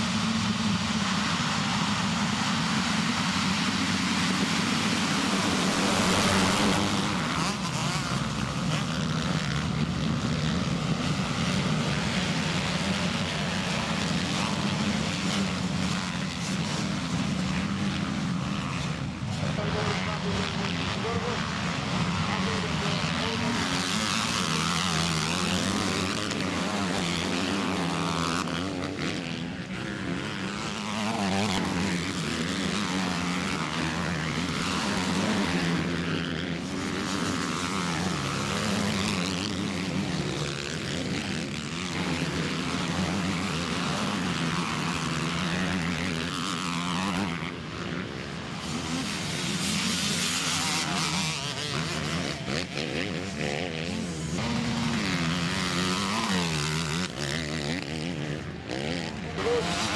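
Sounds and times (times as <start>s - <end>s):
distant motorbikes droning: 0.0s - 59.9s
motocross engines revving: 0.0s - 59.9s.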